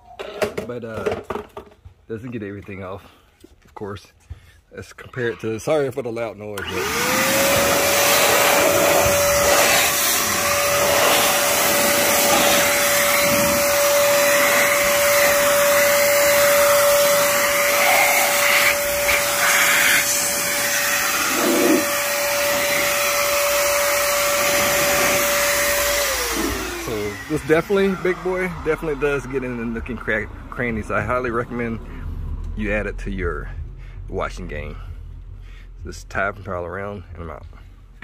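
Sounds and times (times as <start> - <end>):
electric blower whining: 6.6 - 30.0.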